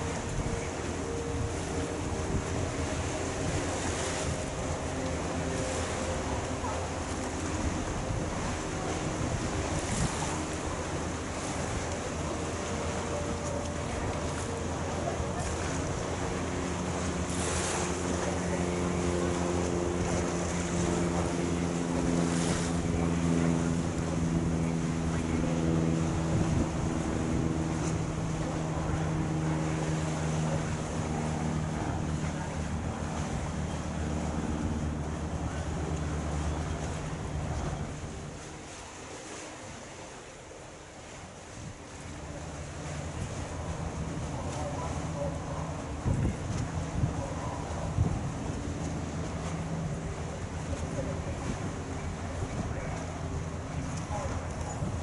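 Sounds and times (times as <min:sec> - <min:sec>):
wind buffeting microphone: 0:00.0 - 0:12.6, 0:14.9 - 0:38.5, 0:42.8 - 0:55.0
choppy water: 0:00.0 - 0:55.0
ferry engines humming: 0:00.0 - 0:55.0.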